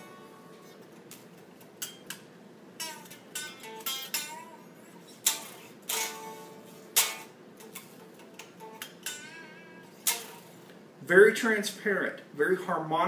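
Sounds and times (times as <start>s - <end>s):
overdriven electric guitar notes: 0.0s - 2.2s, 2.8s - 10.7s.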